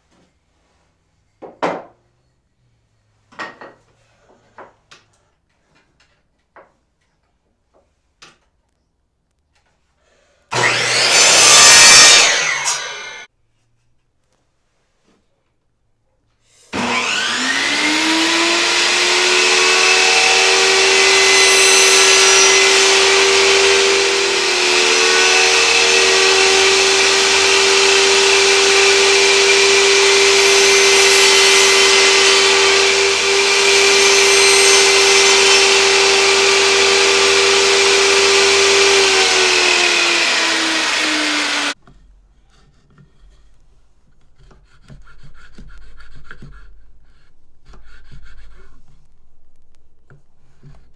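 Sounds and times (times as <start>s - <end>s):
table saw whine: 10.5s - 13.3s, 16.7s - 41.8s
hand file rubbing on wood: 18.2s - 49.1s.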